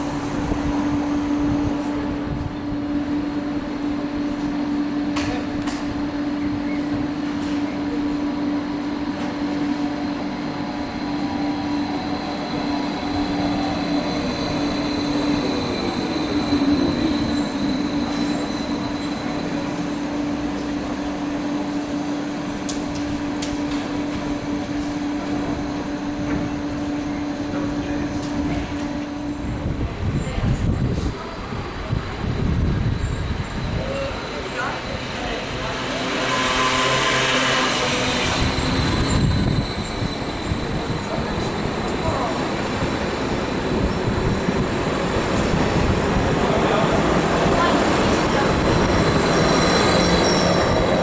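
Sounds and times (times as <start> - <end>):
standing train hum: 0.0 - 51.0
train motor whine braking: 34.4 - 41.3.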